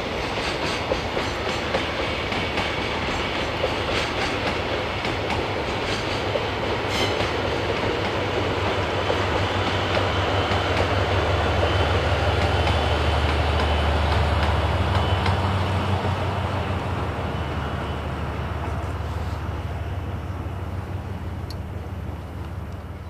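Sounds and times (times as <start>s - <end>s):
train wheels clicking over rail joints: 0.0s - 16.2s.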